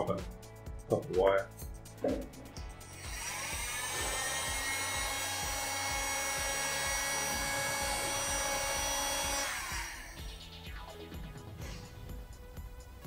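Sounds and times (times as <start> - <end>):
heat gun fan whine: 2.8 - 10.3.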